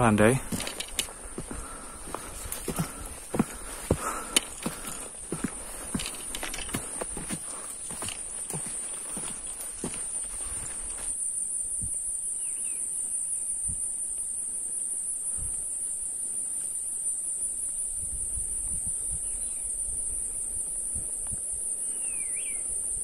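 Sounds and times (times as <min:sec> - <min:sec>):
footsteps on trail: 0:00.0 - 0:11.2.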